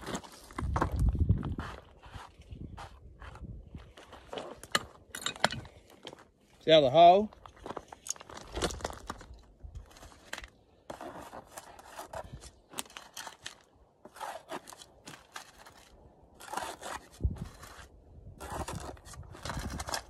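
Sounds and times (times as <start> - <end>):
plastic scoop scraping dirt: 9.8 - 20.0.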